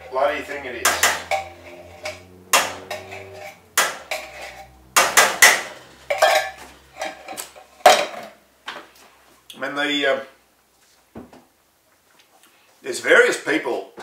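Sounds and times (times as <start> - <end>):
metal utensil clinking on tin: 0.8 - 8.2.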